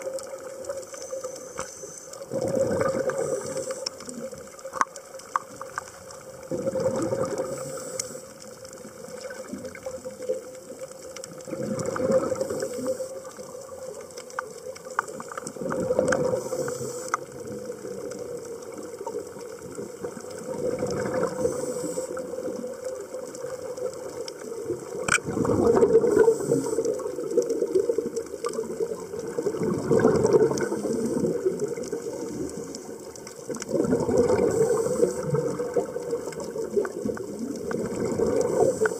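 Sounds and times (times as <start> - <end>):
diver breathing through regulator: 1.4 - 4.2, 7.3 - 8.4, 16.2 - 17.2, 21.2 - 22.3, 25.9 - 27.1, 34.3 - 35.6, 38.3 - 38.9
bubbling exhalation bursts: 2.3 - 4.3, 6.4 - 7.9, 11.4 - 13.0, 15.5 - 17.6, 19.8 - 22.6, 24.9 - 32.6, 33.6 - 38.9.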